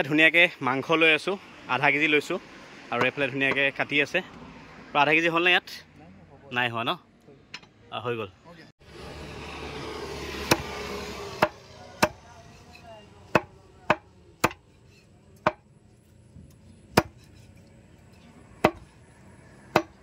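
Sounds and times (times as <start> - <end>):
knife chopping on wooden block: 13.3 - 14.6, 16.9 - 17.3, 18.6 - 18.9, 19.7 - 20.0.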